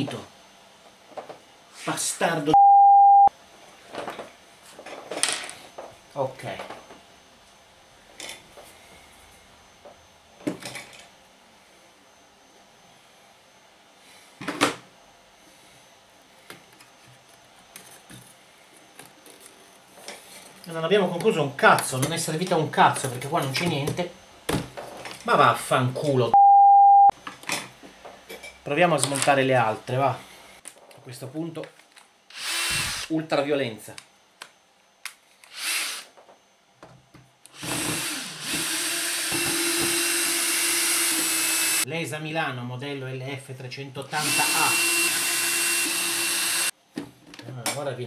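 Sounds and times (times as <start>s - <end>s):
cordless drill motor whirring: 32.3s - 33.1s, 35.4s - 36.1s, 37.5s - 41.8s, 44.1s - 46.8s.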